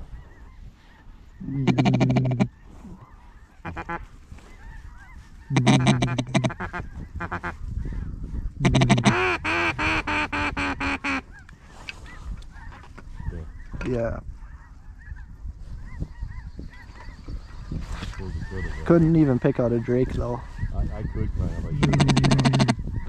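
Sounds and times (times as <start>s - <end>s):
live ducks calling: 0.0s - 23.0s
duck call quacks: 1.6s - 2.5s, 3.6s - 4.0s, 5.5s - 7.6s, 8.6s - 11.2s, 21.8s - 22.8s.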